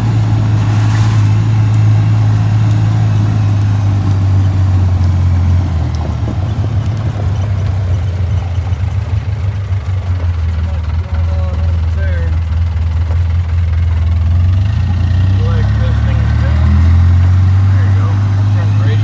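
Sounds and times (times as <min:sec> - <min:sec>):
vehicle engine droning: 0:00.0 - 0:19.0.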